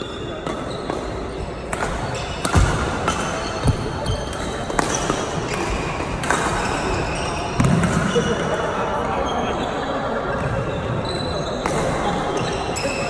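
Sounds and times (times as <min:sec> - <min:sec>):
racket hitting shuttlecock: 0:00.4 - 0:08.2.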